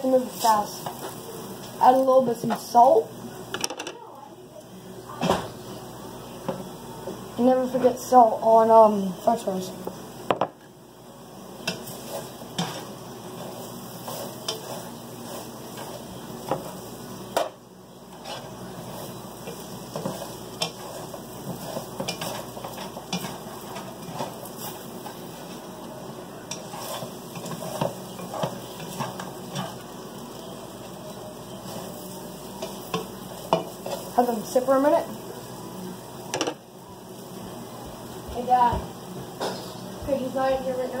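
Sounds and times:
fries sizzling in butter: 0:00.0 - 0:41.0
utensil scraping a pan: 0:11.6 - 0:16.8, 0:18.1 - 0:25.6, 0:26.5 - 0:29.8.

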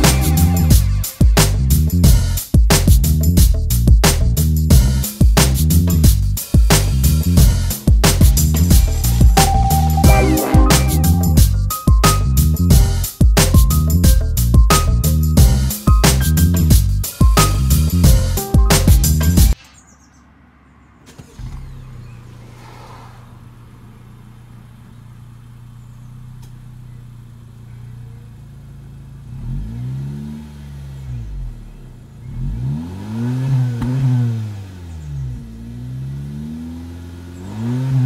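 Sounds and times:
car engine idling and revving: 0:00.0 - 0:10.2, 0:10.8 - 0:38.0.

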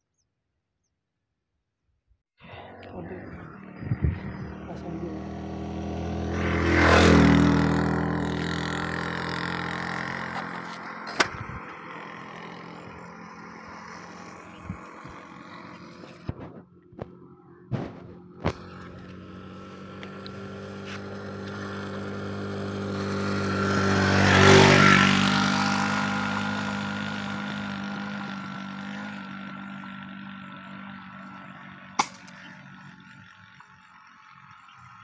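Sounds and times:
vehicle driving past: 0:02.4 - 0:35.0.

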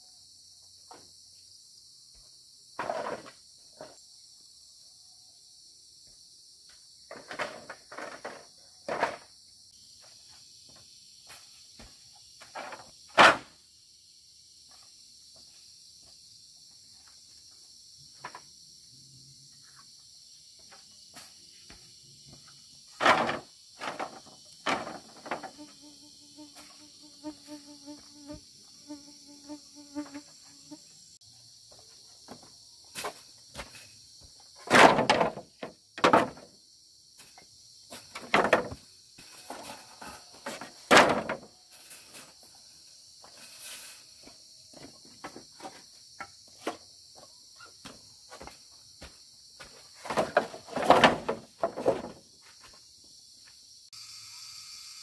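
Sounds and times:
crickets chirping: 0:00.0 - 0:55.0
knocks and clattering: 0:23.0 - 0:25.6, 0:34.6 - 0:36.5, 0:38.1 - 0:38.8, 0:39.5 - 0:41.5, 0:50.0 - 0:52.2.

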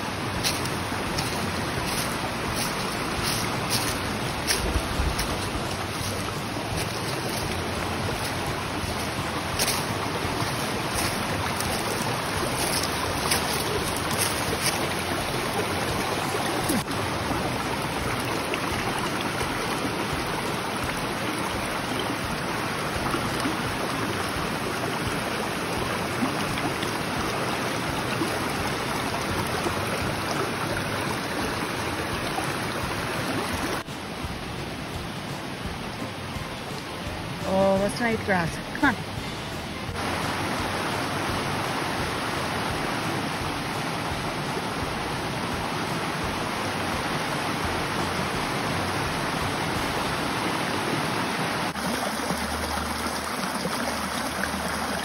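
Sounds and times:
stream water rushing: 0:00.0 - 0:55.0.

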